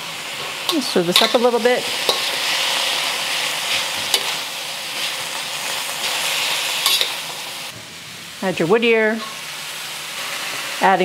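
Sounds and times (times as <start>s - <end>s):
food sizzling in a wok: 0.0s - 11.0s
metal spatula clacking on wok: 0.7s - 2.4s.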